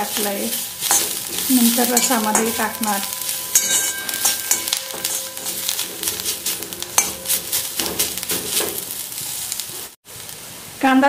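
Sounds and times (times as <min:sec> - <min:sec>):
wooden spatula scraping a pan: 0:00.0 - 0:10.0
onions sizzling in oil: 0:00.0 - 0:11.0.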